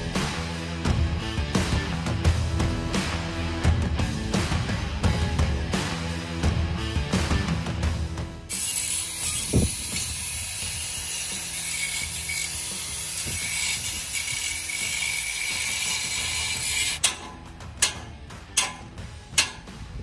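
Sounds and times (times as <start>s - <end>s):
angle grinder cutting steel: 8.5s - 19.7s
sharp knocks: 17.0s - 19.8s.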